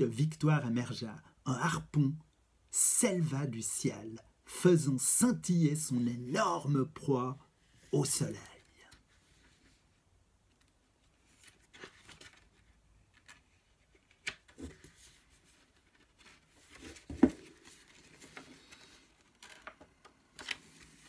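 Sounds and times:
paper pages rustling: 8.2 - 21.0.

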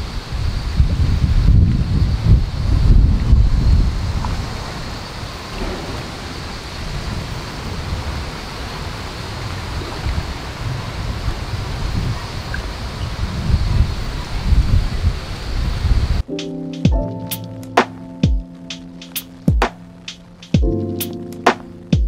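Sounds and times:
wind buffeting microphone: 0.0 - 16.2
steady outdoor hiss: 0.0 - 22.0.

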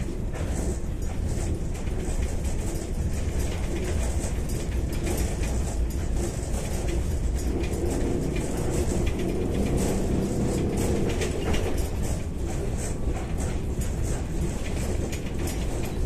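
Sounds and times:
body rattling: 0.0 - 16.0
low road rumble: 0.0 - 16.0
electric traction hum: 6.2 - 15.0.

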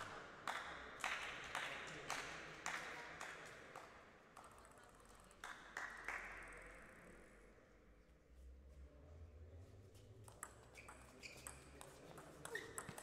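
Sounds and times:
table tennis ball bouncing: 10.2 - 13.0.

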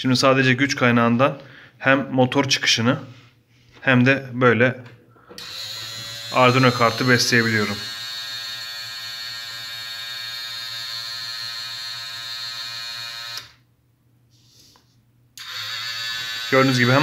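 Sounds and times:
small electric motor whining: 5.4 - 13.6, 15.4 - 17.0.

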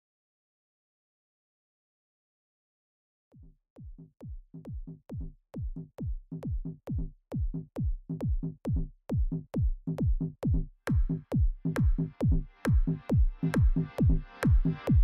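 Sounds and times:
drum machine kick: 3.4 - 15.0
electronic dance music: 10.9 - 15.0.

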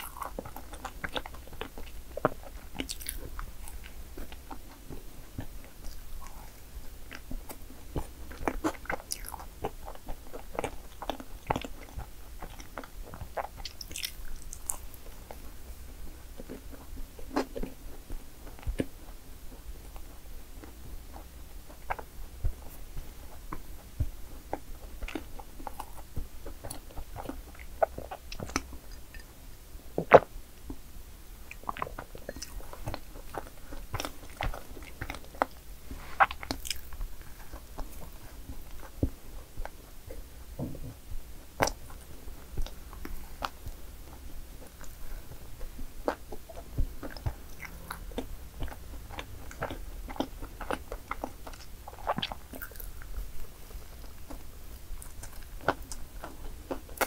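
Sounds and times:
person chewing crunchy cake: 0.0 - 57.0.

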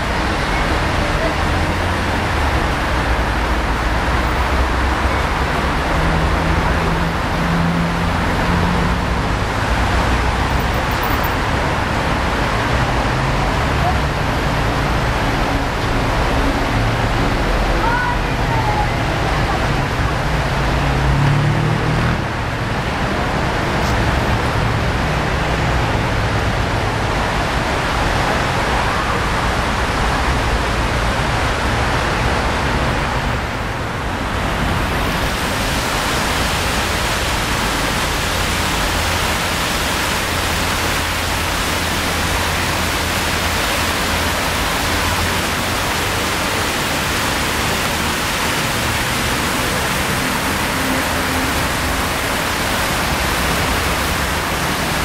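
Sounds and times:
water pouring down stone fountain: 34.8 - 55.0.

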